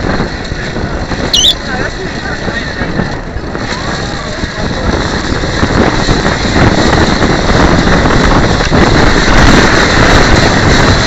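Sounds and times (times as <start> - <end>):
vehicle rattling along track: 0.0 - 11.0
wind noise on microphone: 0.0 - 11.0.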